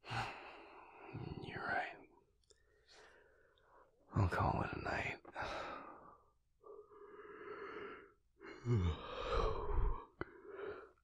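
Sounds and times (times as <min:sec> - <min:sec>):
man breathing and sighing: 0:00.0 - 0:01.5, 0:05.3 - 0:11.0.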